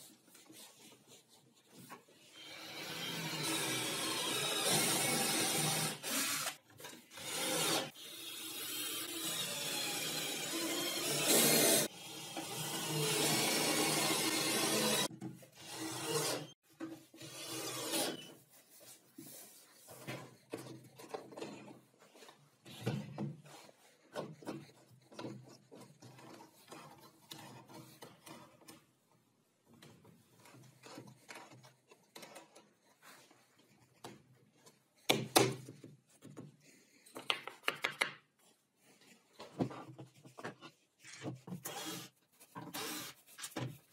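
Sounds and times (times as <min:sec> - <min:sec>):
cordless drill driving screw: 0:02.4 - 0:06.6, 0:07.2 - 0:16.5, 0:41.6 - 0:43.2.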